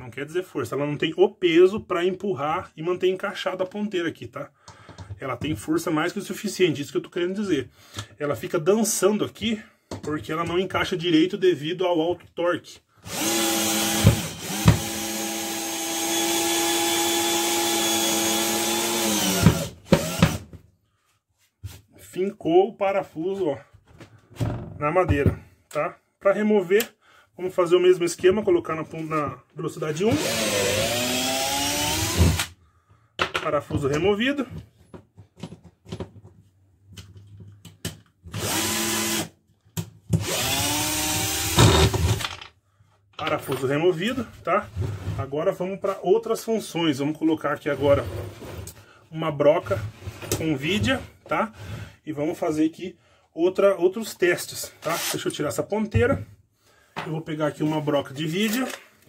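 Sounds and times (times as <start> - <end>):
cordless drill driving screw: 13.1 - 20.4, 30.1 - 32.5, 38.3 - 39.3, 40.2 - 42.3, 54.8 - 55.2.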